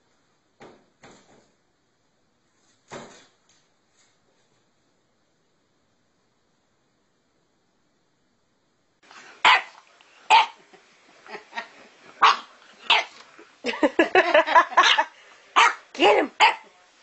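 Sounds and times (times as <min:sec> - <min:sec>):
puppy yapping: 0:09.4 - 0:10.6, 0:12.2 - 0:13.2, 0:14.8 - 0:16.7.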